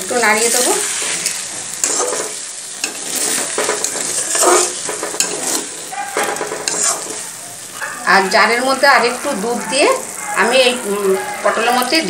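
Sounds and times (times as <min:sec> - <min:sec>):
steady sizzle: 0:00.0 - 0:12.0
spatula scraping in a pan: 0:00.1 - 0:12.0.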